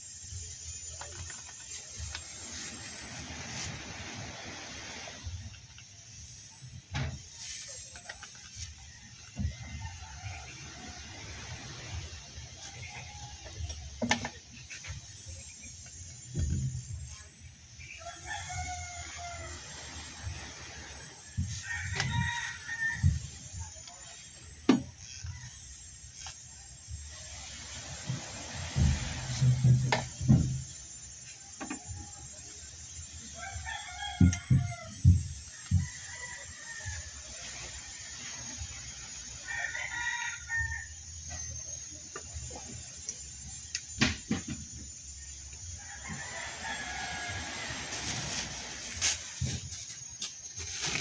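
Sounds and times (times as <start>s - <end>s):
rooster crowing: 7.2s - 13.8s, 17.8s - 24.1s, 32.9s - 41.5s, 45.6s - 51.0s.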